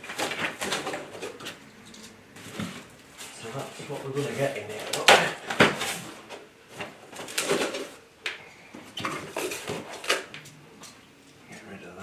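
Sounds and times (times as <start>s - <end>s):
knocks and clatters from unpacking: 0.0s - 1.6s, 3.6s - 8.0s, 8.8s - 10.4s.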